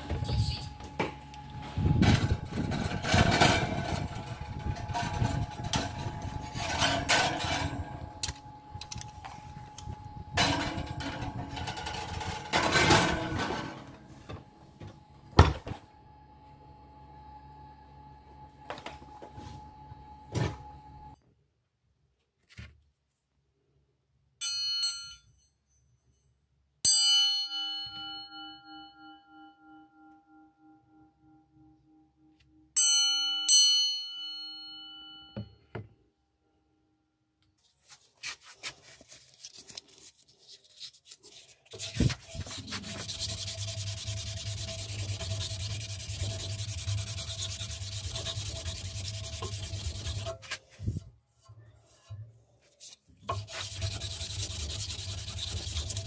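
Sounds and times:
knife blade ringing like a bell: 0:24.4 - 0:26.1, 0:26.9 - 0:30.7, 0:32.8 - 0:35.6
abrasive rubbing on steel: 0:41.2 - 0:56.0.

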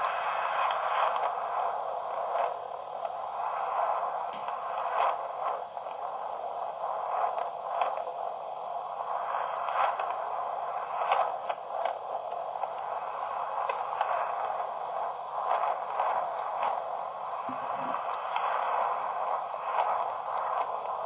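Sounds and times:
tinny hiss and crackle: 0:00.0 - 0:21.0
scattered clicks: 0:17.5 - 0:21.0.

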